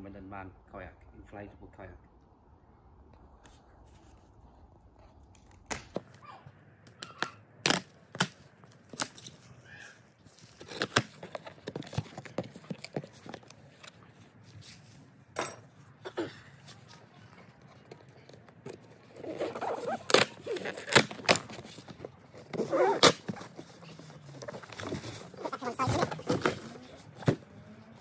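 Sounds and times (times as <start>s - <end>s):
packing tape slit and torn: 6.8s - 9.5s, 10.3s - 14.0s, 17.8s - 27.3s
cardboard flaps pulled apart: 10.3s - 13.4s, 19.1s - 27.5s.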